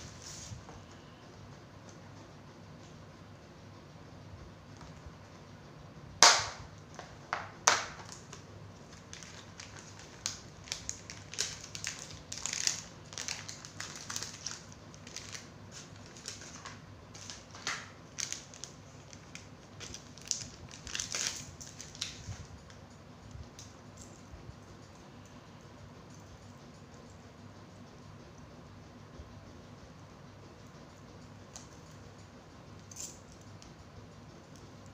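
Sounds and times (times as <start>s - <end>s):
plastic pouches crinkling: 7.0s - 22.7s.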